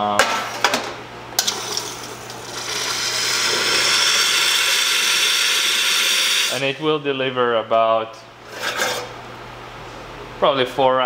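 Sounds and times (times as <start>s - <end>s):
hot water and steam hissing: 1.4s - 6.8s.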